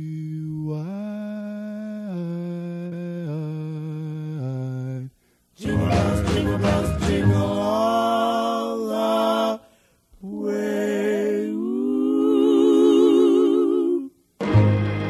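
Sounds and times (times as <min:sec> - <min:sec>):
person singing with vibrato: 0:00.0 - 0:14.3
instrumental music: 0:05.6 - 0:08.1, 0:14.4 - 0:15.0.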